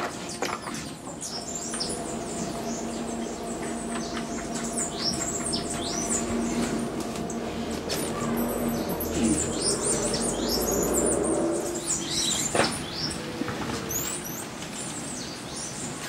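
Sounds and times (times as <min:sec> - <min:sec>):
steady low hum: 0:00.0 - 0:14.4
small birds chirping: 0:00.6 - 0:13.3.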